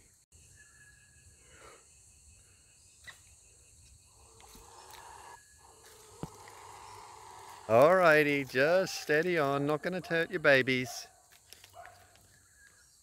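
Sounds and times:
bird growling hiss: 4.1s - 7.8s.

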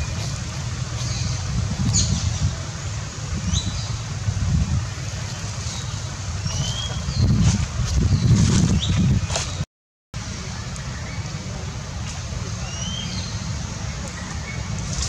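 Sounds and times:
wind buffeting microphone: 0.0s - 9.6s
bird chirps: 5.6s - 7.4s, 12.6s - 15.0s.

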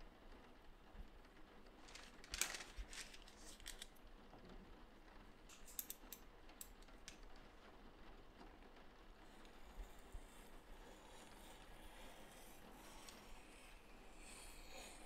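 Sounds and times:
paper rustling: 1.8s - 4.0s.

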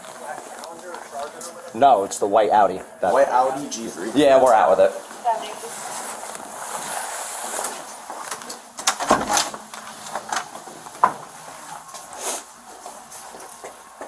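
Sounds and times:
footsteps knocks and clicks: 7.8s - 12.1s, 12.7s - 14.0s
door pushed open: 8.8s - 9.6s.

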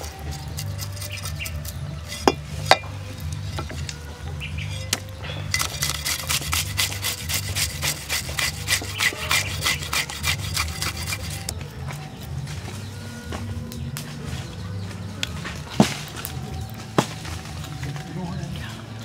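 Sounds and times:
cleaver scraping fish scales: 0.0s - 12.4s.

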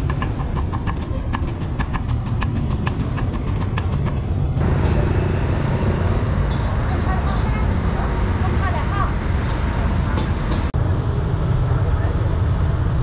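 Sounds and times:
steady low rumble: 3.1s - 13.0s.

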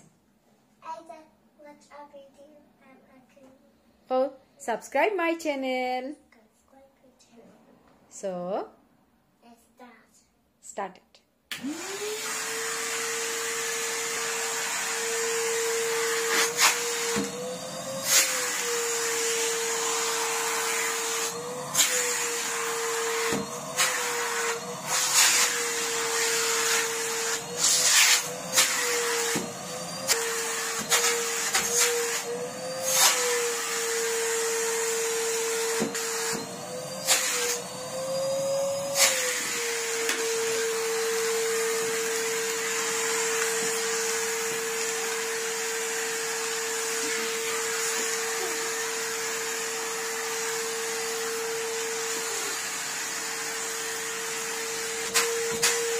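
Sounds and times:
vacuum cleaner motor whining: 11.5s - 55.9s.

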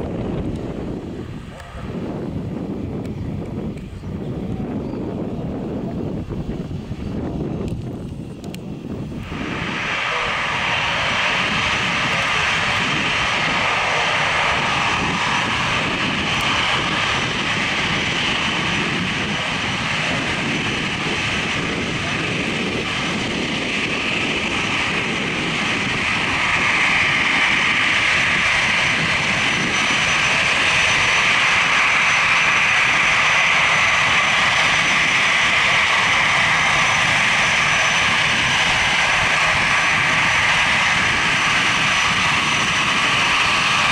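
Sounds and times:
jet engines whining: 0.0s - 43.9s.

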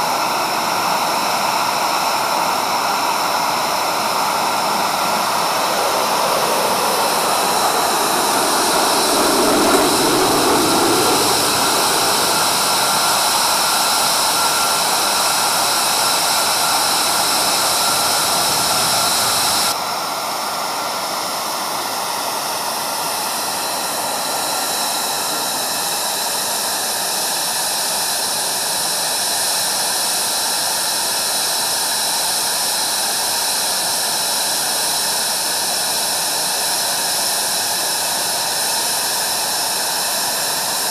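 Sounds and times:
jet engines roaring overhead: 0.1s - 19.8s, 20.9s - 28.2s.

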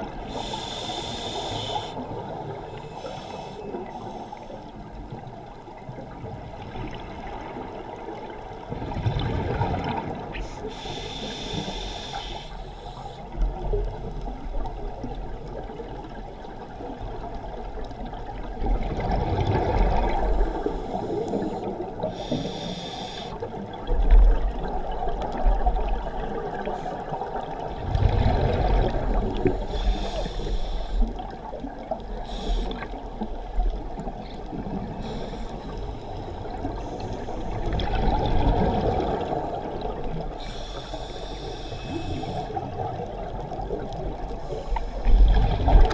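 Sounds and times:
muffled water rush: 0.0s - 45.9s
regulator inhale hiss: 0.2s - 4.7s, 10.4s - 13.4s, 20.2s - 23.6s, 29.4s - 31.2s, 32.2s - 33.0s, 34.9s - 37.6s, 40.4s - 42.9s, 44.3s - 45.4s
exhaled bubbles underwater: 5.0s - 11.6s, 13.4s - 22.6s, 23.4s - 45.9s.

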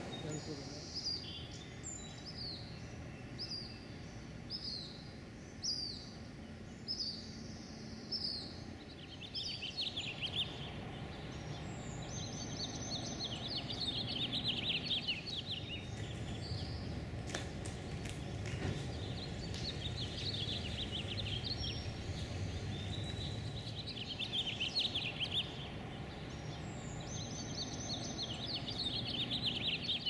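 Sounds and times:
birds chirping: 0.0s - 30.0s
low background hiss: 0.0s - 30.0s
high chittering bird notes: 6.8s - 30.0s.

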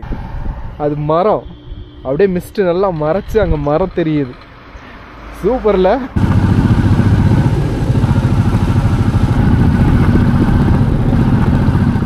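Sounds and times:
motorcycle engine running: 6.2s - 12.0s.

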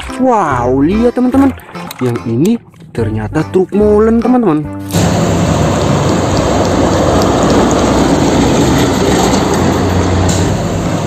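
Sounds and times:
concrete mixer truck running: 4.9s - 11.0s.

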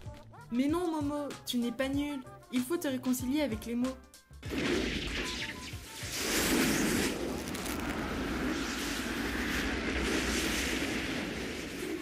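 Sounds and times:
rushing rumbling whoosh: 6.2s - 12.0s.

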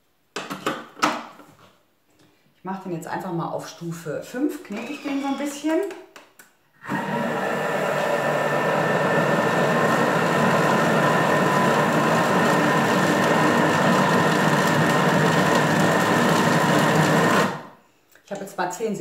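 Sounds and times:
food processor running: 6.8s - 17.7s.

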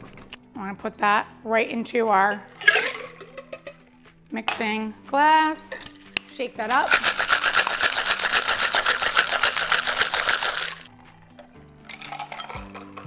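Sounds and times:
ice rattling in cocktail shaker: 2.5s - 3.8s, 5.7s - 10.9s, 11.8s - 13.0s.

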